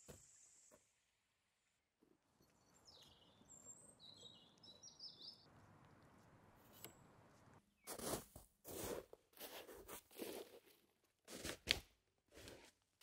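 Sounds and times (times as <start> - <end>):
bird chirping: 2.3 - 6.1.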